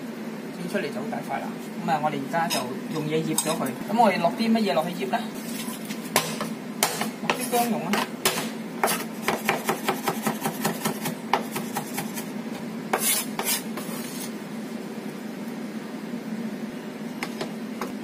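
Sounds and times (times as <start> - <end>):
cleaver chopping on wooden board: 6.2 - 7.4, 8.2 - 12.1
blade scraping across board: 12.9 - 14.4.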